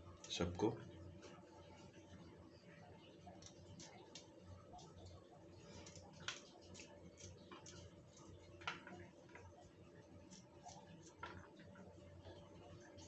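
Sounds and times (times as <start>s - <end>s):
garlic peeling clicks and crackles: 3.3s - 9.5s.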